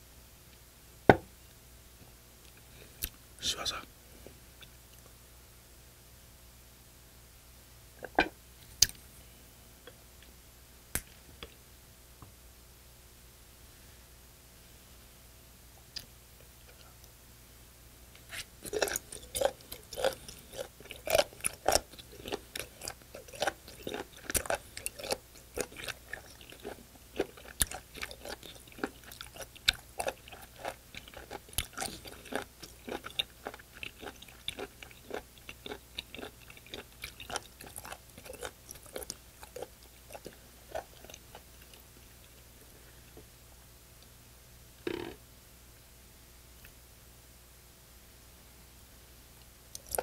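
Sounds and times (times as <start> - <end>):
person chewing wet clicking bites: 18.6 - 42.4, 49.7 - 50.0.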